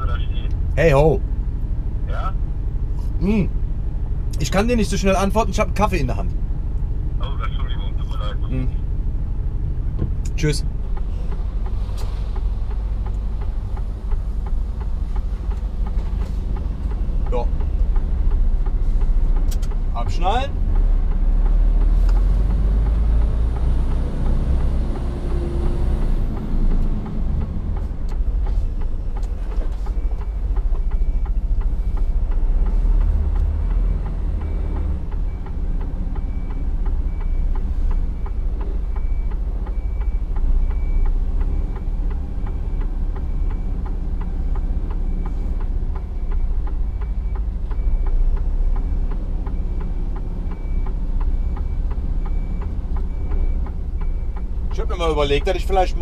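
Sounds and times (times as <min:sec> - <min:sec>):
truck diesel engine running: 0:00.0 - 0:56.0
reversing alarm beeping: 0:29.7 - 0:56.0.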